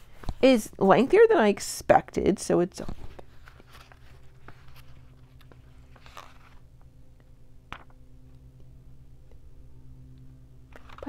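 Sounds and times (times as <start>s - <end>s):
faint steady hum: 0.0s - 11.0s
paper pages rustling: 2.8s - 6.6s, 10.7s - 11.0s.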